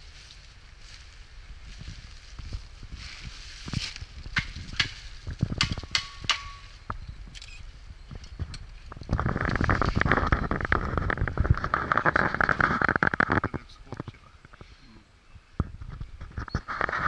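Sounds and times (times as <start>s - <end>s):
footsteps crunching dry leaves: 0.0s - 5.5s.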